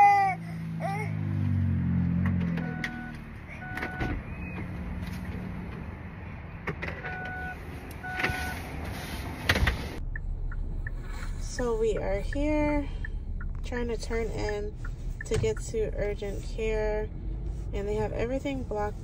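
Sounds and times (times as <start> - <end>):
car warning beeps: 2.4 - 4.7, 6.9 - 8.6, 10.0 - 16.9.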